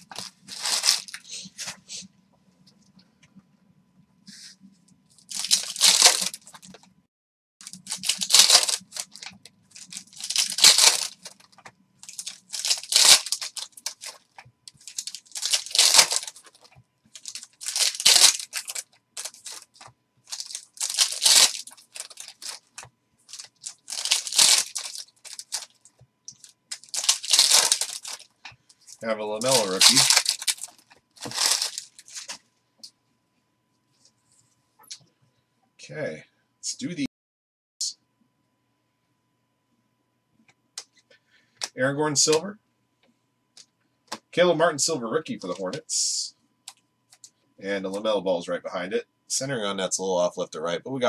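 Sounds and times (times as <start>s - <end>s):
foil wrappers tearing: 0.0s - 1.4s, 5.3s - 6.8s, 7.6s - 32.4s.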